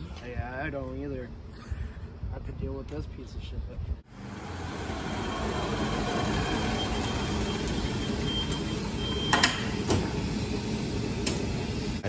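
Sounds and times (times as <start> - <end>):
utility vehicle motor running: 4.1 - 12.0.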